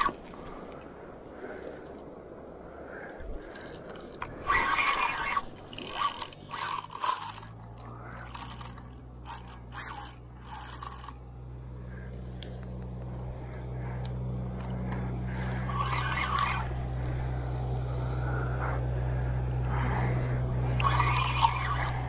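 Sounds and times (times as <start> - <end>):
low motor hum: 0.0 - 22.0
fishing reel ratcheting: 4.4 - 11.2, 19.7 - 22.0.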